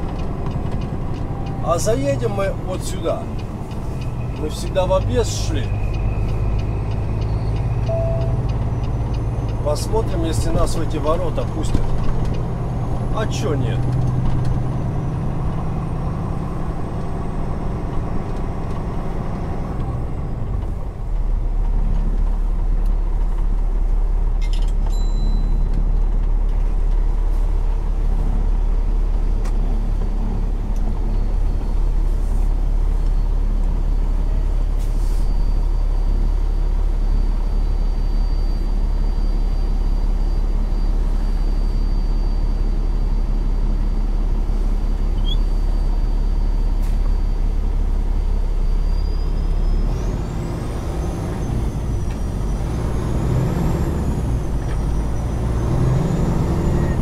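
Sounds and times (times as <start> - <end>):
diesel truck engine rumbling: 0.0 - 57.0
brief air hiss: 34.8 - 35.3.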